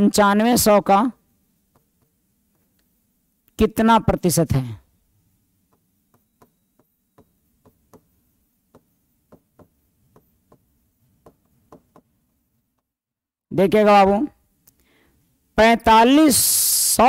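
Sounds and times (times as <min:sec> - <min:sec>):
marker tapping on whiteboard: 0:01.7 - 0:02.8, 0:05.6 - 0:13.0.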